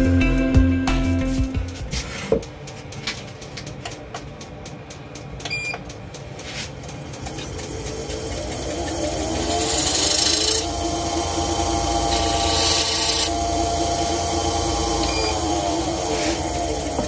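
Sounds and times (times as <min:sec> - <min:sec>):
lathe motor whine: 0:07.1 - 0:17.0
turning tool cutting wood hiss: 0:07.3 - 0:17.0.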